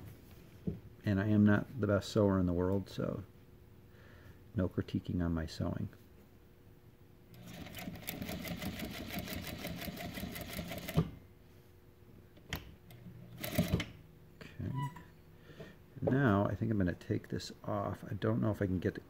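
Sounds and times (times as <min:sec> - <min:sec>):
sewing machine stitching: 0:07.3 - 0:11.1, 0:13.3 - 0:13.9.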